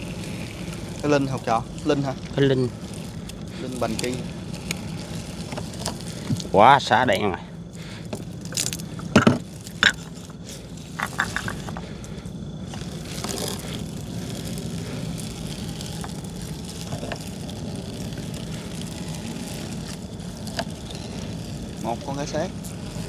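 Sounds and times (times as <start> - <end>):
boat engine running: 0.0 - 6.7
net knocking and scraping: 8.1 - 11.9.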